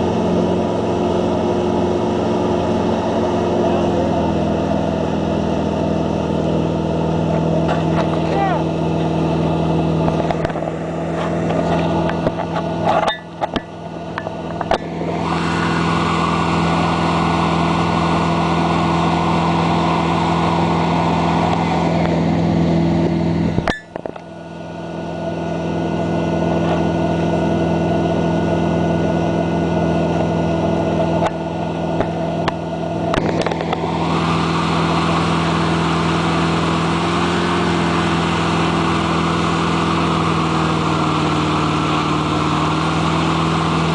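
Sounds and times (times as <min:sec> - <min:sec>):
boat engine running: 0:00.0 - 0:43.9
churning water rushing: 0:15.1 - 0:22.0.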